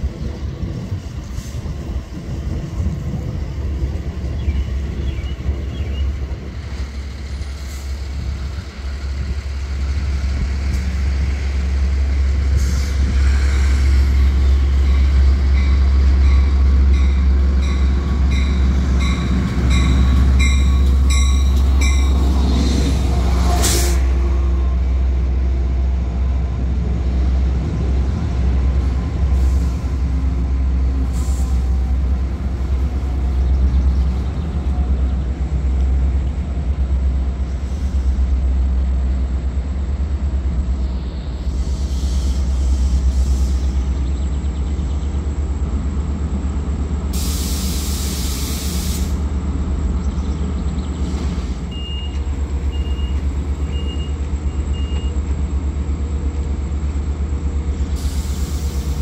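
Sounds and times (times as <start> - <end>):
locomotive engine rumble: 0.0 - 59.0
locomotive bell ringing: 15.5 - 22.2
brake air hiss: 41.4 - 43.8, 47.1 - 49.2, 57.8 - 59.0.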